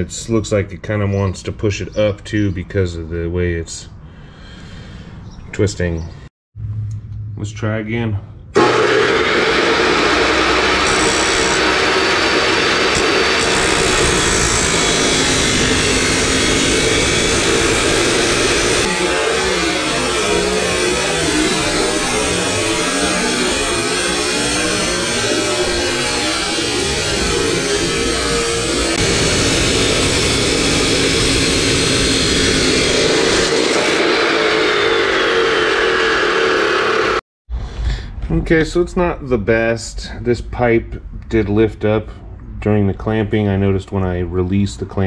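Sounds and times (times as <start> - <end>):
chop saw cutting metal pipe: 8.6 - 37.2.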